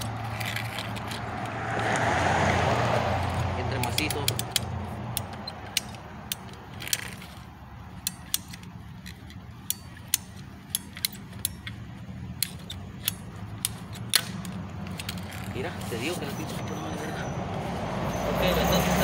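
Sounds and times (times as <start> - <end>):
pipe cutter ratchet clicks: 3.2 - 15.8.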